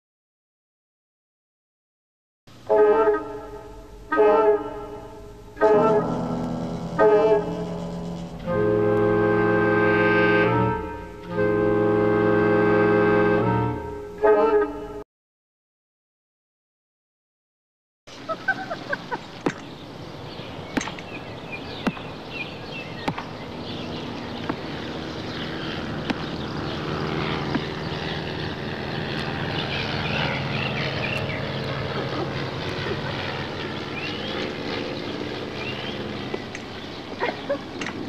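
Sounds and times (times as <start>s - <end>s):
low drone: 2.8s - 15.0s, 19.0s - 38.0s
rackets hitting ball: 19.4s - 19.7s, 20.7s - 21.2s, 23.0s - 23.3s, 26.0s - 26.3s.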